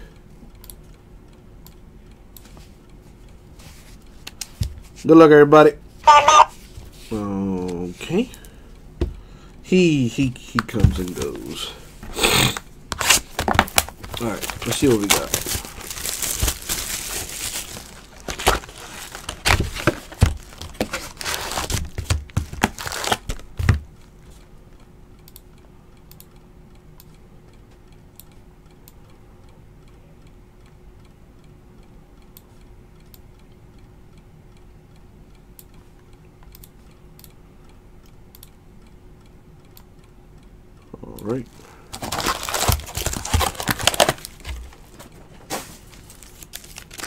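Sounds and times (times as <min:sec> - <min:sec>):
faint steady hum: 0:00.0 - 0:47.0
plastic wrap crinkling and tearing: 0:13.0 - 0:23.6, 0:41.5 - 0:47.0.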